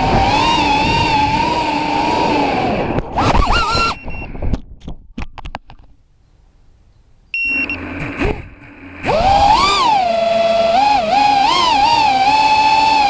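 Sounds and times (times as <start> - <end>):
drone motor whine: 0.0 - 4.1, 7.4 - 13.0
short electronic beep: 3.9 - 4.4, 7.3 - 7.9.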